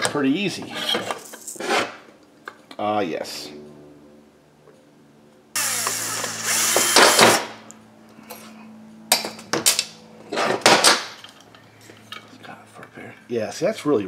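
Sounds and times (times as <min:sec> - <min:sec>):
cordless drill whirring: 0:05.6 - 0:07.5.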